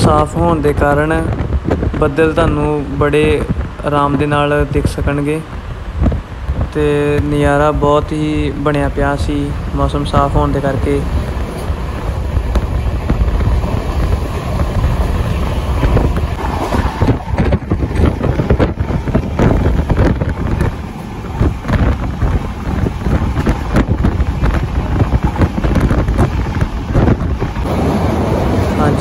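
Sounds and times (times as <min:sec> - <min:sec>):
train rumbling: 0:00.0 - 0:29.0
wind buffeting microphone: 0:00.0 - 0:29.0.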